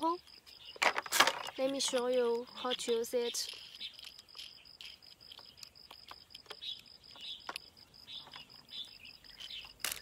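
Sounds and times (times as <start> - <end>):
faint chirps: 0.0 - 10.0
small plastic clicks and taps: 0.8 - 8.6.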